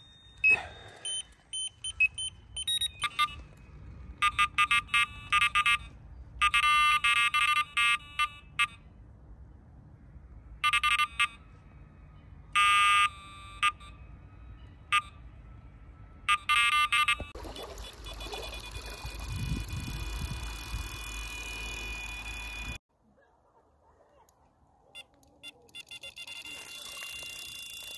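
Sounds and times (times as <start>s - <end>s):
bite alarm high beeps: 0.0s - 3.4s, 4.2s - 8.8s, 16.3s - 22.8s, 25.0s - 27.9s
steady high alarm tone: 16.3s - 22.8s, 25.8s - 27.9s.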